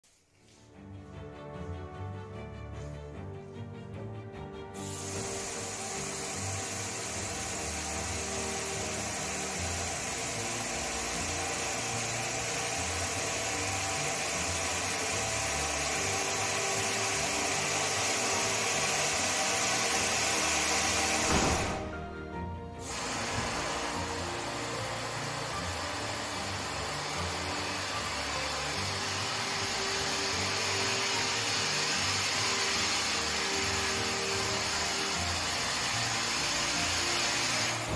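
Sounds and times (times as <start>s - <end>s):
background music: 0.1s - 37.9s
compressed air hissing: 4.8s - 22.0s, 22.8s - 37.9s
knock: 21.3s - 22.0s.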